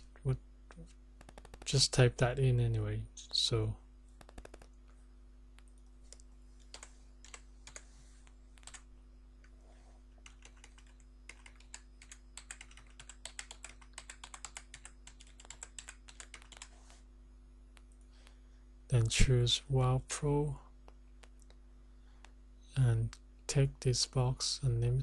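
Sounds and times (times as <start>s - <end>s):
steady low hum: 0.0s - 25.0s
typing on computer keyboard: 1.2s - 1.8s, 4.2s - 4.7s, 6.1s - 7.8s, 8.6s - 8.9s, 10.2s - 16.7s.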